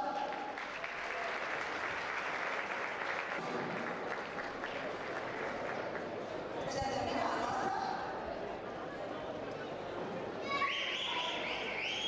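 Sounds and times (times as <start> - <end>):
audience applauding: 0.4 - 6.2.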